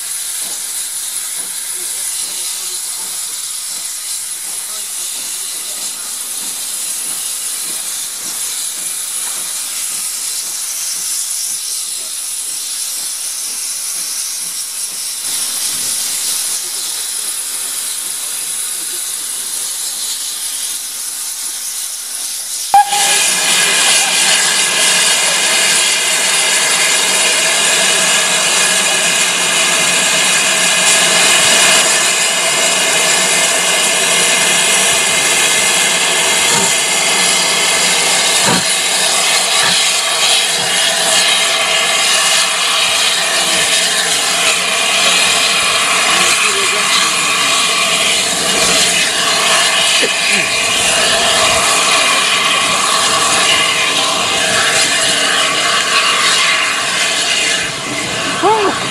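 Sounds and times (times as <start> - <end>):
distant steam train: 0.0 - 58.9
steam blowing off with ringing tones: 15.4 - 58.9.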